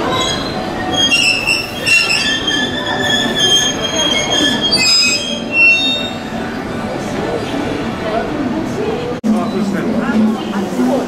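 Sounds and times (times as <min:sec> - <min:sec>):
train wheels and brakes squealing: 0:00.0 - 0:06.5.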